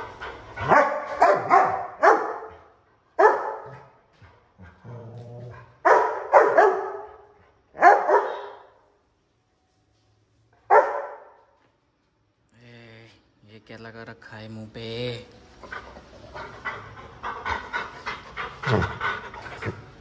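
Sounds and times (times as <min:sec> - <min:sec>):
dog barking: 0:00.6 - 0:02.5, 0:03.2 - 0:03.9, 0:05.8 - 0:07.2, 0:07.8 - 0:08.7, 0:10.7 - 0:11.4.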